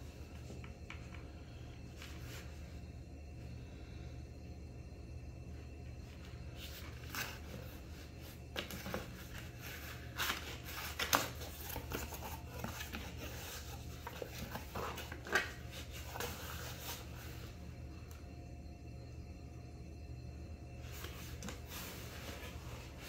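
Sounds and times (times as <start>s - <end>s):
cardboard rustling and scraping: 6.5s - 17.6s, 20.8s - 23.0s.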